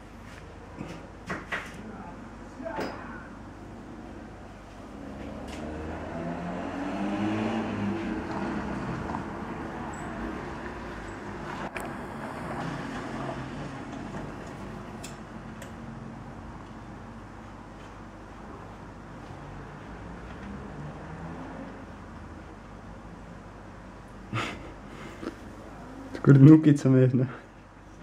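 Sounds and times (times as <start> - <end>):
low traffic hum: 0.0 - 28.0
vehicle passing: 4.7 - 14.9, 19.4 - 22.3.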